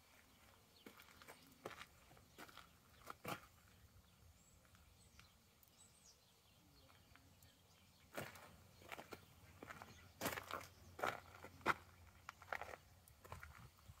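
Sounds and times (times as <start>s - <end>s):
footsteps on gravel: 0.0s - 3.8s, 8.1s - 14.0s
faint bird chirps: 0.1s - 14.0s.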